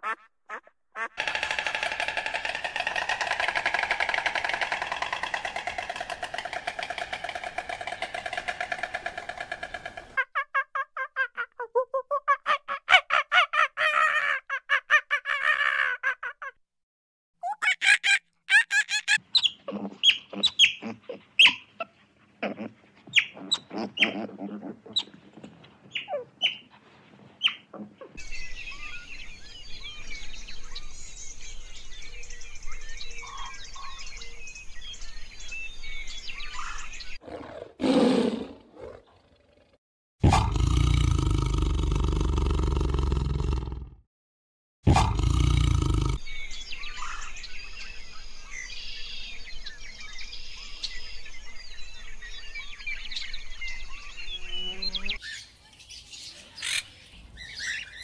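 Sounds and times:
rapid pitched animal calls: 0:00.0 - 0:10.3, 0:17.5 - 0:25.2
bird chatter: 0:01.0 - 0:10.2
chirps and clucks: 0:19.0 - 0:26.7, 0:45.9 - 0:58.0.

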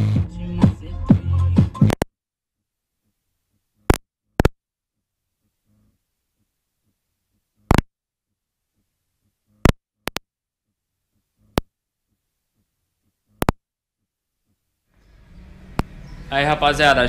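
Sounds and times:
microphone crackling pops: 0:03.8 - 0:04.6, 0:07.6 - 0:07.9.

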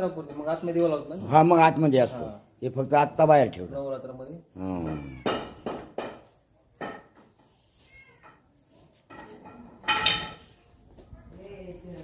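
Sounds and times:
cat meowing: 0:04.8 - 0:05.6, 0:07.8 - 0:08.4.

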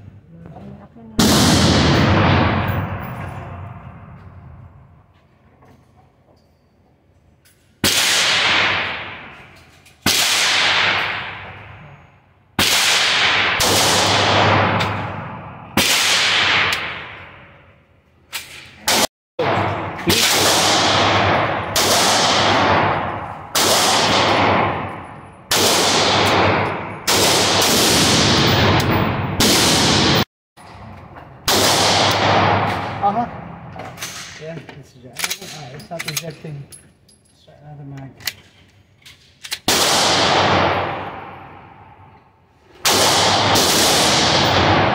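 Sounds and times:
pistol shots echoing: 0:01.2 - 0:03.6, 0:07.8 - 0:09.4, 0:10.0 - 0:11.8, 0:12.6 - 0:17.4, 0:18.9 - 0:30.2, 0:31.4 - 0:33.7, 0:39.7 - 0:42.0, 0:42.8 - 0:44.9.

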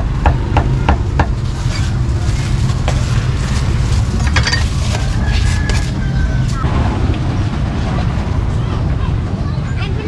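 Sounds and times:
low rumble: 0:06.2 - 0:09.5.

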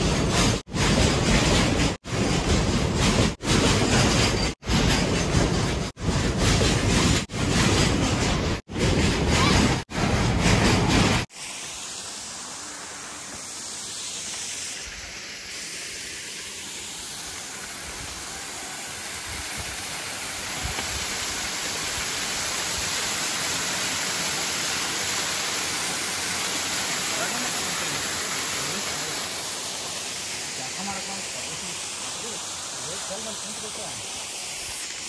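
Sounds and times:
flowing water hiss: 0:10.4 - 0:35.0.

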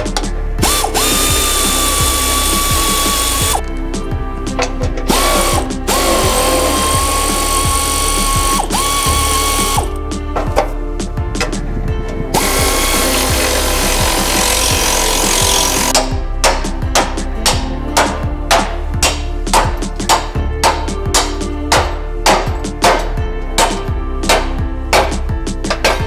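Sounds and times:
air ratchet whine: 0:00.6 - 0:03.6, 0:05.1 - 0:10.0, 0:12.4 - 0:16.0.

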